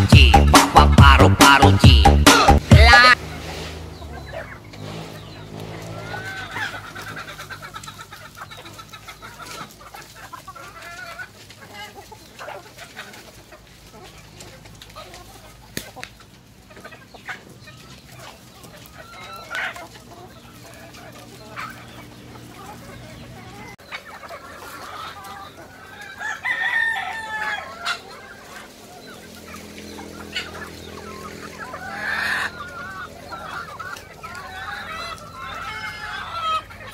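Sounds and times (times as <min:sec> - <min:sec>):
chickens clucking: 0:00.0 - 0:36.9
rooster crowing: 0:05.6 - 0:07.7, 0:25.7 - 0:29.0.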